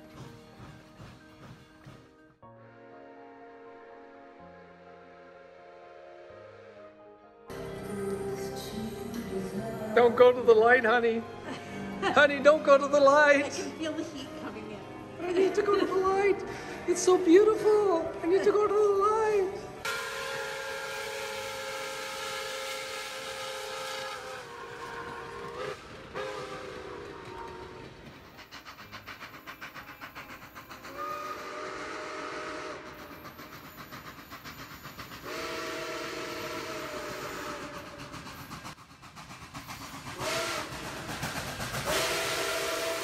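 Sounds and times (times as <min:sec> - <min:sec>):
steam engine chugging and hissing: 0:00.0 - 0:02.2, 0:19.8 - 0:43.0
steam locomotive whistle blasts: 0:19.8 - 0:27.9, 0:30.9 - 0:33.2, 0:35.2 - 0:38.2, 0:40.2 - 0:41.0, 0:41.8 - 0:43.0.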